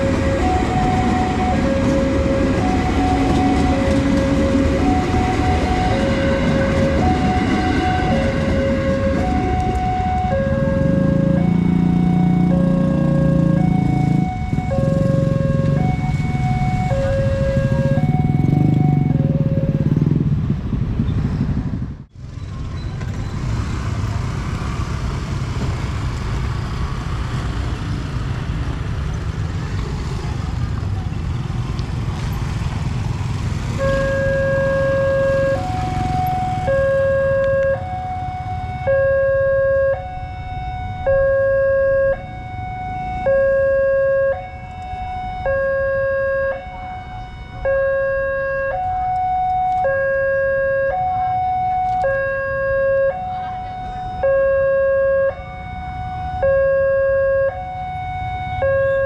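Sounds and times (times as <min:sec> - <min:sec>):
level crossing two-tone alarm: 0:00.0 - 0:19.8, 0:33.8 - 0:59.0
motorbike traffic rumbling: 0:00.0 - 0:59.0.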